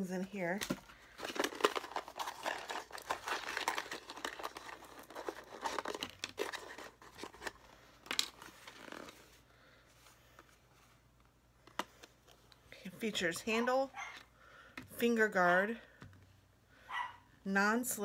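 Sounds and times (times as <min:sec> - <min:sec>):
cardboard box crinkling and rustling: 0:00.6 - 0:09.4.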